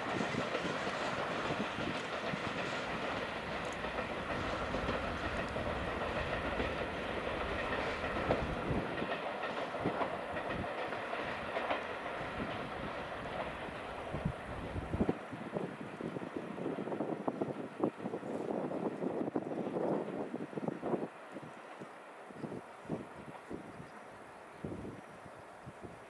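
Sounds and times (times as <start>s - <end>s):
rail clicks: 0.0s - 25.6s
train rumbling on track: 0.0s - 26.0s.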